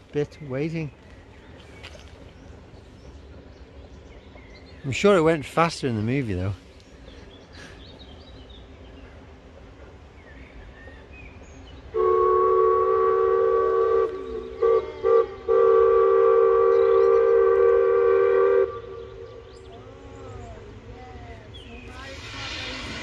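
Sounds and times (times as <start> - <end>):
steam locomotive whistle: 11.9 - 19.4.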